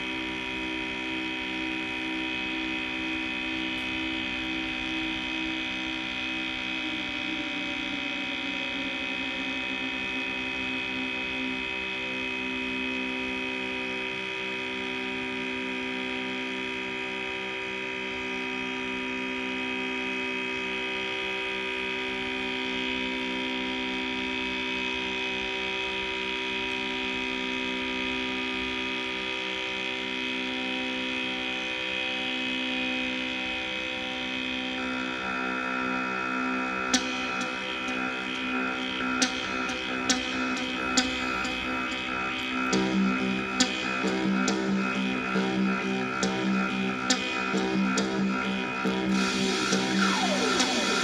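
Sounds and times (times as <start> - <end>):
synthesizer drone: 34.4 - 51.0
higher synthesizer tone: 42.7 - 51.0.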